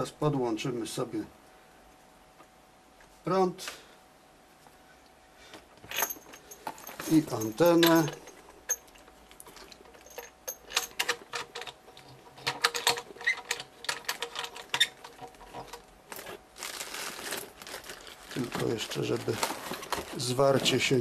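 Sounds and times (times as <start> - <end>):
cable plugs clicking and rattling: 6.0 - 16.4, 17.2 - 20.9
scraping rustle: 11.9 - 21.0.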